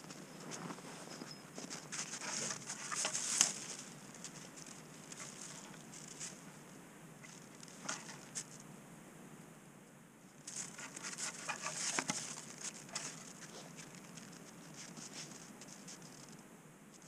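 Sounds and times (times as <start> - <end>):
snow crunching and rustling: 0.0 - 8.6, 10.4 - 16.4.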